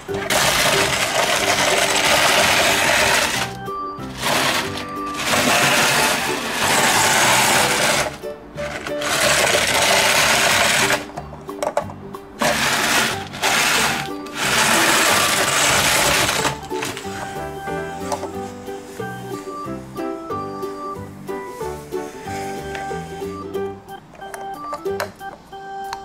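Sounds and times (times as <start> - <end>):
background music: 0.0 - 26.0
toy wheels crunching gravel: 0.1 - 11.1, 12.4 - 17.2.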